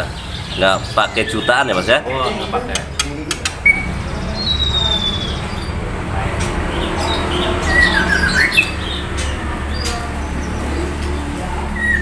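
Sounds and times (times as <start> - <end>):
songbirds chirping and squawking: 0.0 - 12.0
sharp clicks: 2.7 - 3.9.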